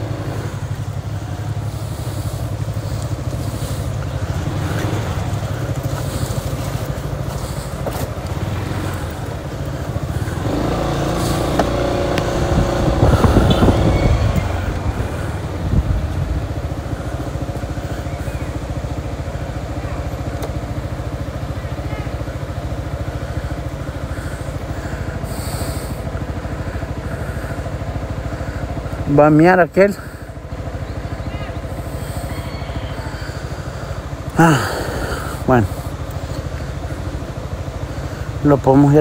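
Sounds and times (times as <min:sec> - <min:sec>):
motorcycle engine drone: 0:00.0 - 0:39.0.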